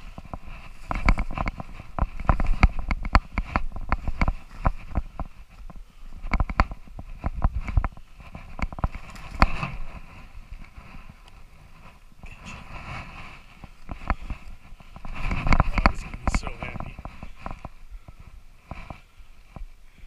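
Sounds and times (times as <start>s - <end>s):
footsteps in snow and dry leaves: 0.0s - 19.5s
rustling of movement: 0.0s - 20.0s.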